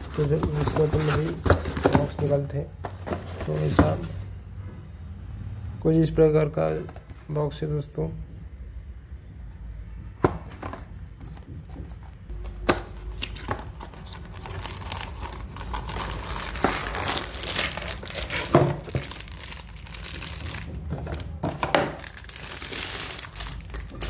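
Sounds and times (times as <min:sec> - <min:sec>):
plastic wrap crinkling: 0:13.0 - 0:24.0.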